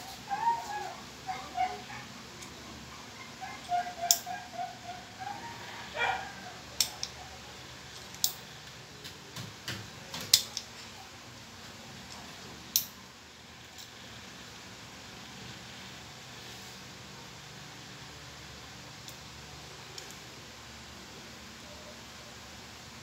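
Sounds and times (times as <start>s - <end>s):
dog whining: 0.0s - 7.4s.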